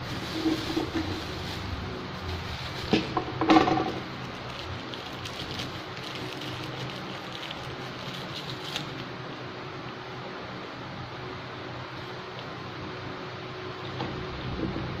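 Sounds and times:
plastic wrapping crinkling: 0.0 - 9.2
electric fan hum: 0.0 - 15.0.

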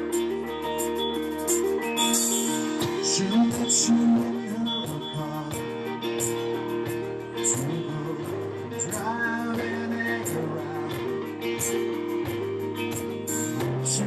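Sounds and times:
guitar: 0.0 - 14.0
man singing: 2.8 - 11.9, 13.6 - 14.0.

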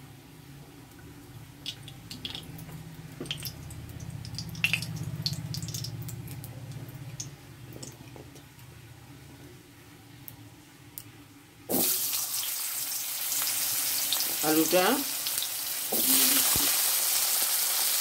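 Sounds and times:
low steady hum: 0.0 - 12.5
hot oil crackling and popping: 1.6 - 8.7, 11.7 - 18.0.

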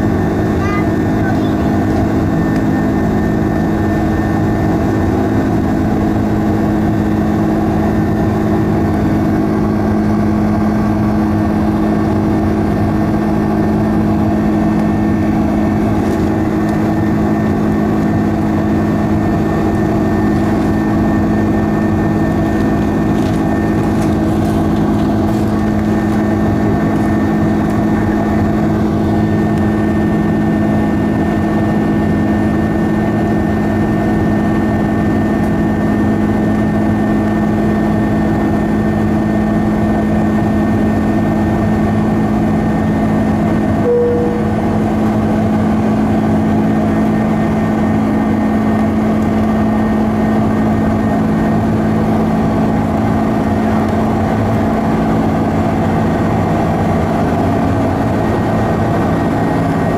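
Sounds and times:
jet engines humming: 0.0 - 59.9
brief cabin tone: 43.8 - 46.0.

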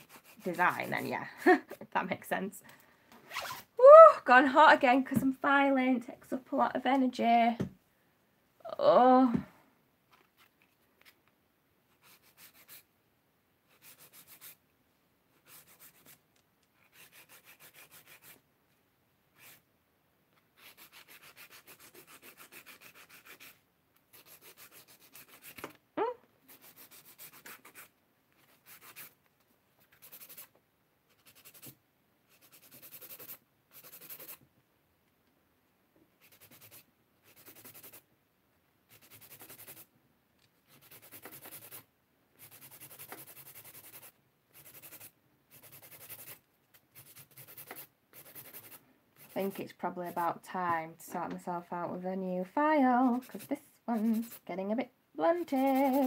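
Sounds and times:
nail file rasping: 0.0 - 1.0, 12.0 - 12.9, 13.7 - 14.6, 15.4 - 16.2, 16.8 - 18.4, 20.6 - 25.8, 26.5 - 29.2, 29.9 - 30.5, 31.1 - 34.4, 36.2 - 38.0, 38.9 - 39.9, 40.7 - 41.8, 42.4 - 49.6, 53.1 - 54.4, 55.4 - 56.0.

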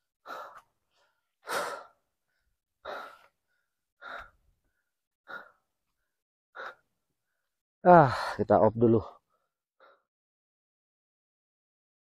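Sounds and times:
person breathing hard: 0.1 - 8.4, 9.2 - 10.1.

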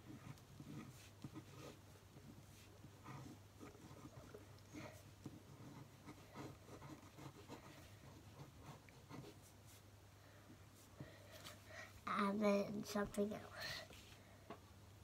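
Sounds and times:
pen scratching on paper: 0.0 - 9.8
low steady hum: 0.0 - 15.0.

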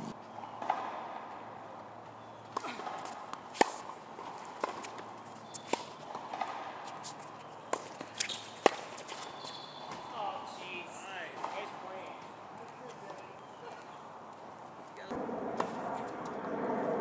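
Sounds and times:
tennis ball struck by rackets: 0.6 - 1.3, 2.5 - 10.1
tennis ball bouncing on court: 0.6 - 1.4, 2.0 - 10.2, 11.3 - 12.4.

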